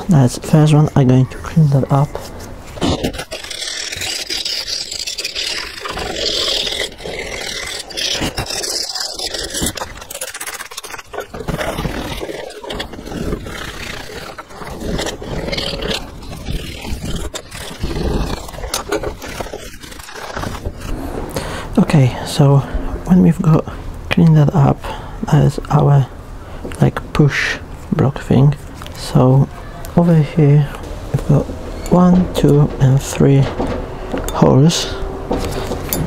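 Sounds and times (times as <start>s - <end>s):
tool scraping metal: 1.7s - 21.1s, 30.8s - 36.0s.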